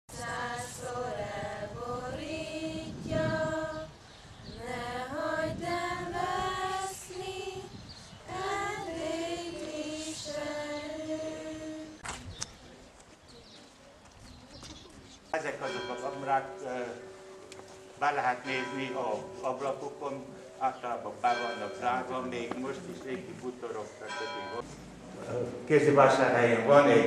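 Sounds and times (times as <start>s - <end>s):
group singing unaccompanied: 0.1s - 12.0s.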